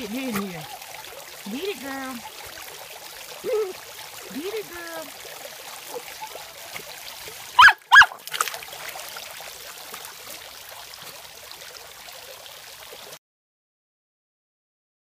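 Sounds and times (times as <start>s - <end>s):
fountain water splashing: 0.0s - 13.2s
dog barking: 7.6s - 8.2s.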